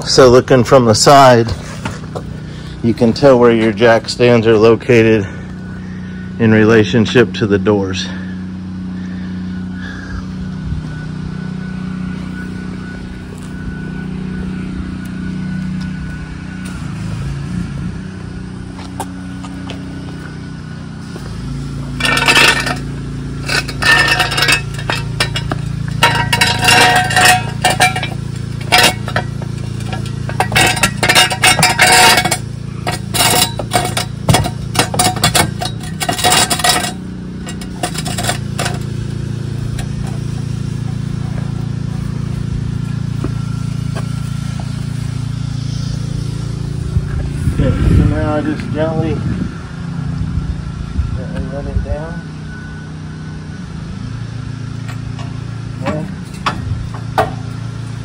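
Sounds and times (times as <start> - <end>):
steady low hum: 0.0 - 58.0
metal scraping: 11.0 - 50.1
metal jack stands clinking: 21.6 - 42.1.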